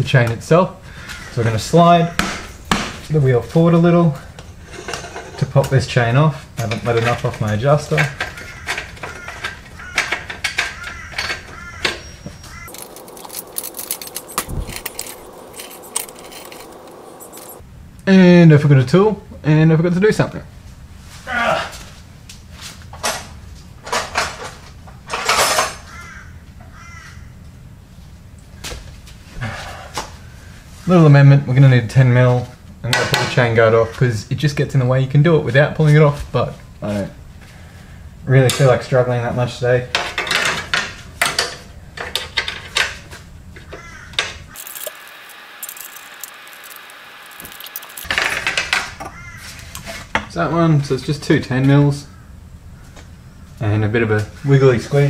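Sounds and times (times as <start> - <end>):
metal hand tools clattering: 12.7 - 17.6.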